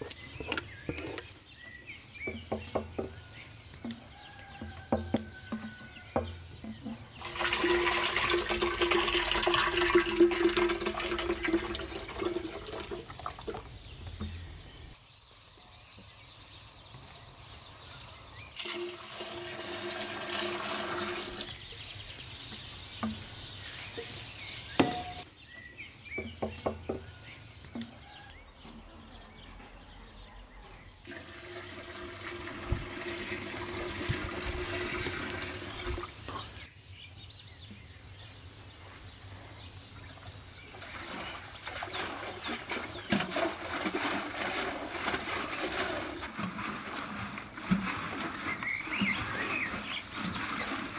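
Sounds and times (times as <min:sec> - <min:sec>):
liquid pouring into wooden churn: 0:07.2 - 0:13.7, 0:18.6 - 0:21.6, 0:31.0 - 0:36.3, 0:40.7 - 0:50.9.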